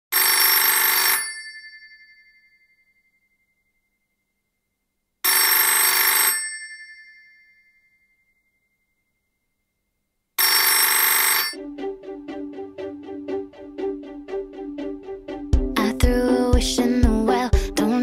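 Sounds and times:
telephone bell ringing: 0:00.2 - 0:03.0, 0:05.2 - 0:08.0, 0:10.4 - 0:11.6.

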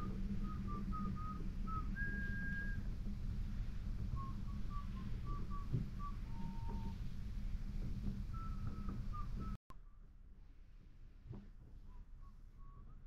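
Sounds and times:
high steam whistles: 0:00.0 - 0:09.6.

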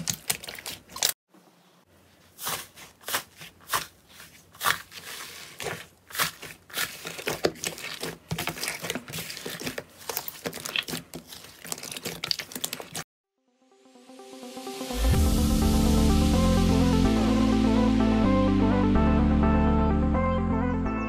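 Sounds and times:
slime crust crackling: 0:02.4 - 0:13.0
sticky slime tearing: 0:04.5 - 0:13.0.

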